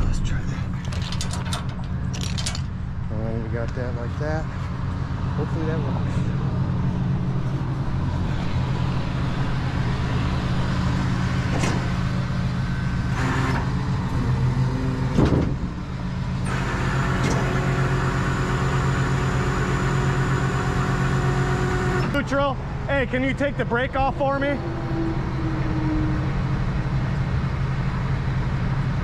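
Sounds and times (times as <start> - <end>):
high whine: 0.0 - 15.0, 22.0 - 28.7
truck engine running: 0.0 - 29.0.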